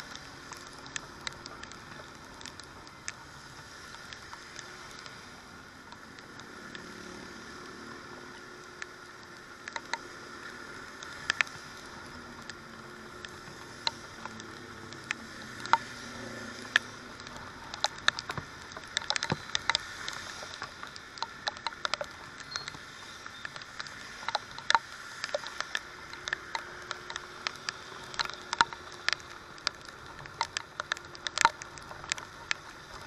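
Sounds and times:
hiss of riding on wet road: 0.0 - 33.0
raindrops tapping on microphone: 0.0 - 33.0.

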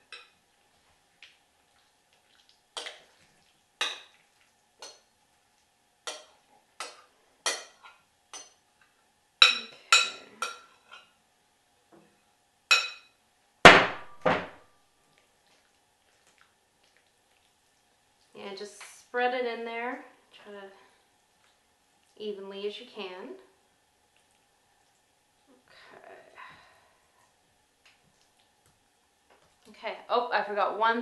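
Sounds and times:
spoon clinking on glass bowl: 9.4 - 11.0, 12.7 - 13.2.

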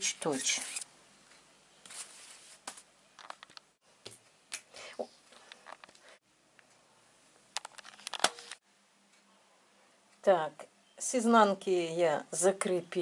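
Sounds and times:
fabric rustling: 1.8 - 3.4.

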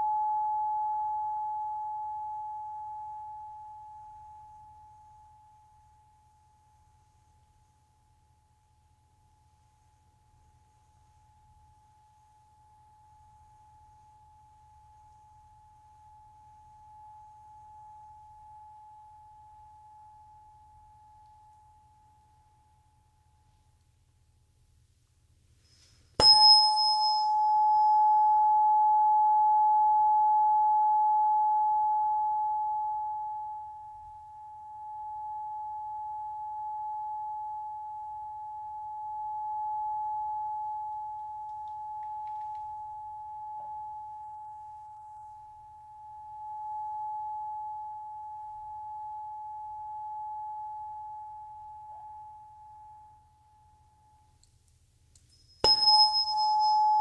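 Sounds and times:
tuning fork ringing tone: 0.0 - 23.8, 25.6 - 54.5, 55.2 - 57.0
tuning fork strike click: 26.2 - 28.6, 55.2 - 57.0.

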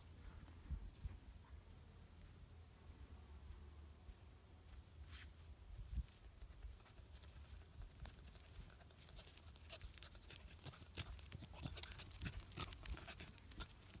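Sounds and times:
grass rustling: 3.4 - 14.0
dog panting: 6.4 - 14.0.

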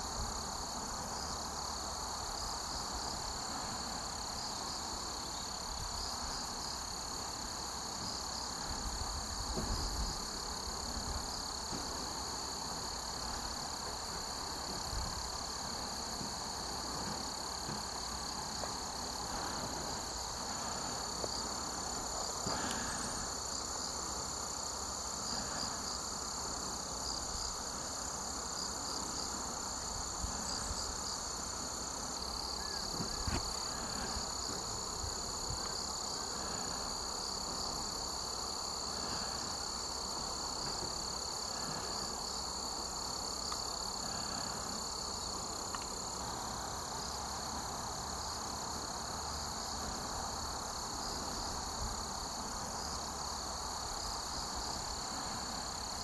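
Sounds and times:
insects trilling: 0.0 - 56.0.

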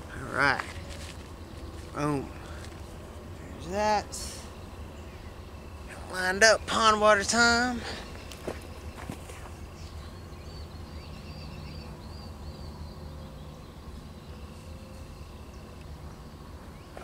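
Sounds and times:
bird chirping: 0.0 - 17.0
low outdoor rumble: 0.0 - 17.0.

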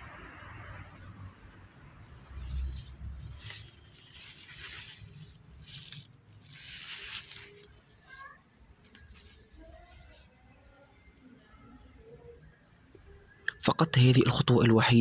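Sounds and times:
leaves and stems rustling: 0.1 - 10.8.

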